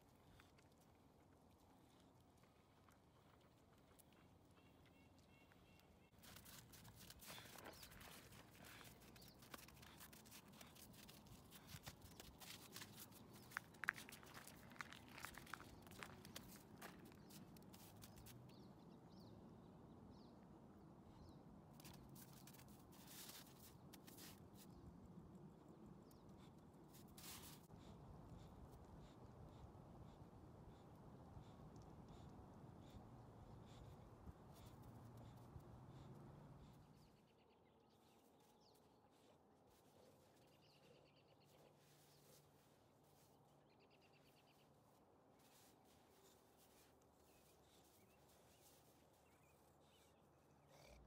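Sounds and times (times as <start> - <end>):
faint small-bird chirps: 4.6 - 6.2.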